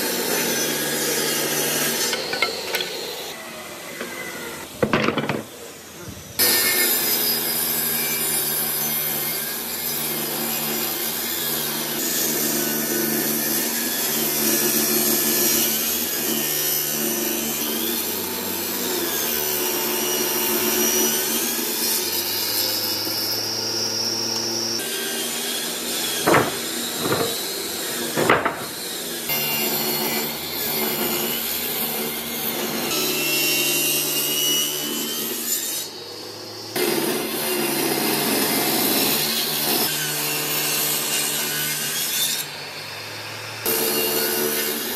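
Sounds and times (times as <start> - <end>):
table saw cutting wood: 0.0 - 44.9
sharp knocks: 26.2 - 28.9.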